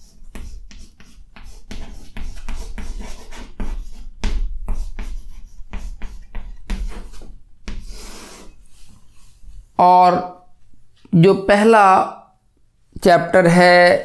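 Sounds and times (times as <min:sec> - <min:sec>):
chalk scratching on chalkboard: 0:00.0 - 0:09.4.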